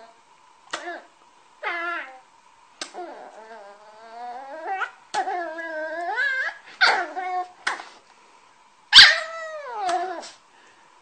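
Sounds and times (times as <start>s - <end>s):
puppy whining and howling: 0.8s - 2.3s, 2.9s - 7.6s, 8.9s - 10.4s
puppy yipping: 8.9s - 10.3s.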